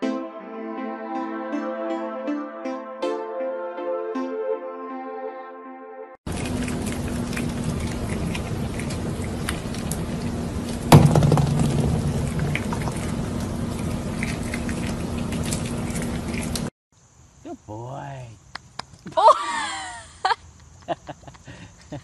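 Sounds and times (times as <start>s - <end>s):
animal gnawing corn: 6.3s - 16.7s
loud thump: 10.9s - 13.2s.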